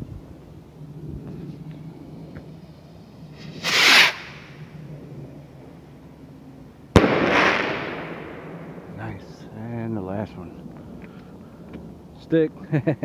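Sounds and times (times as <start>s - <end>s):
rocket launching whoosh: 3.4s - 4.6s, 7.0s - 9.0s
firework bang: 6.9s - 8.9s.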